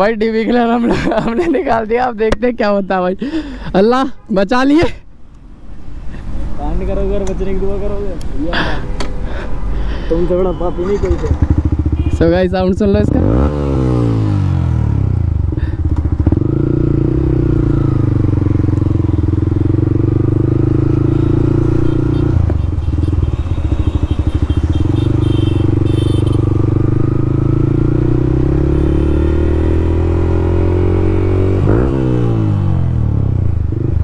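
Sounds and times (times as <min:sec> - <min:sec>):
loud motorcycle exhaust: 0:10.9 - 0:34.0.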